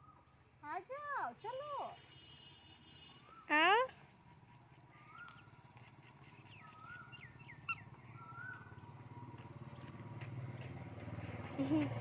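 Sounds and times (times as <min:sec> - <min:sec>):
passing vehicle engine hum: 0:04.1 - 0:12.0
whistled bird calls: 0:04.9 - 0:05.5, 0:06.5 - 0:08.8
birds chirping: 0:04.9 - 0:10.0.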